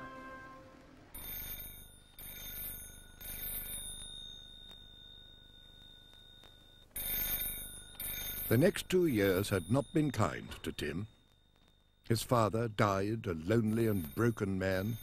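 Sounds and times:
telephone bell ringing: 0:00.0 - 0:09.9, 0:13.8 - 0:15.0.

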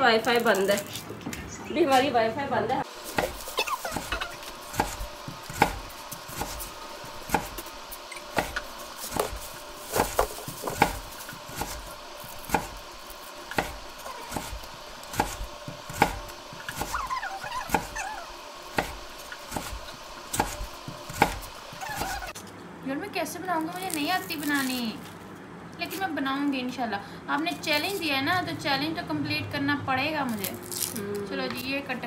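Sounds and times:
knife chopping vegetables: 0:02.9 - 0:22.4.

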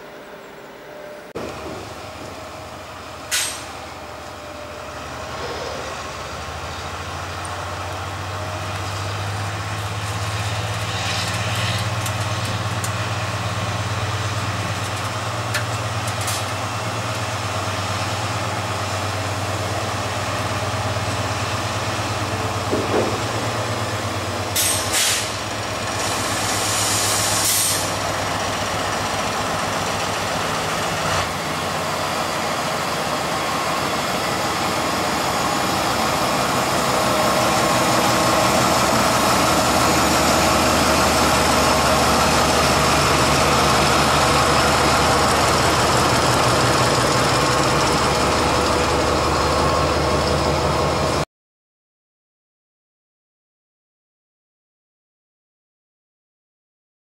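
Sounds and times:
diesel locomotive engine running: 0:00.0 - 0:51.2
air hissing: 0:26.0 - 0:28.0.

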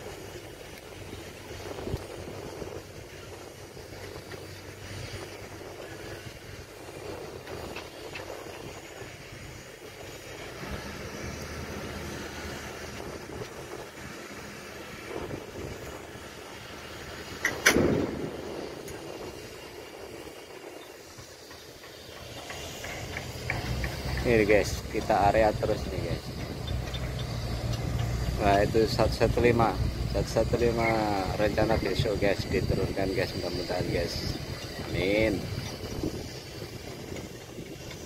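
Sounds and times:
diesel engine running: 0:00.0 - 0:38.0
shipyard machinery noise: 0:00.0 - 0:38.0
loud sharp bang: 0:17.5 - 0:19.0.

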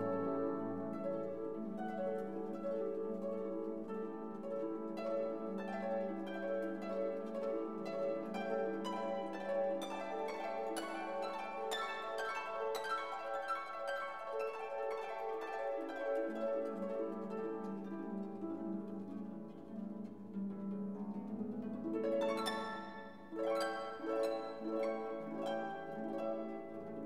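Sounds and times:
plucked string music: 0:00.0 - 0:27.0.

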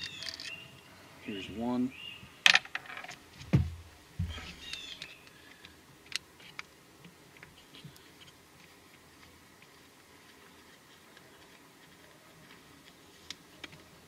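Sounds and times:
dull knocks: 0:03.4 - 0:04.4.

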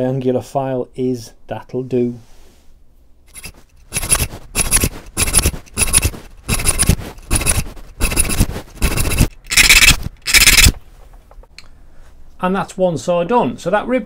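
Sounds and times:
file rasping on saw teeth: 0:03.3 - 0:10.7.

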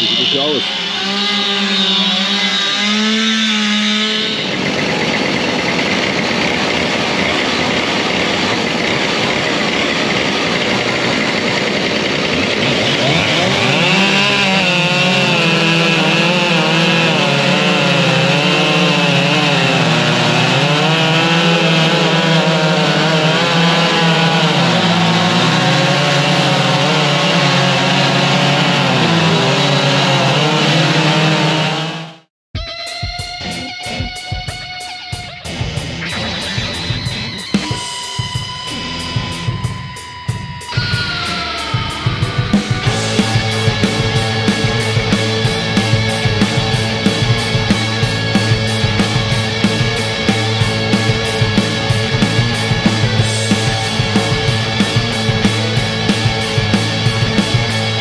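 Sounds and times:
chainsaw cutting into log: 0:00.0 - 0:32.2.

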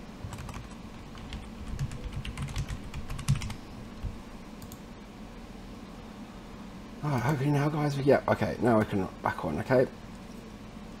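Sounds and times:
keyboard typing: 0:00.3 - 0:03.6.

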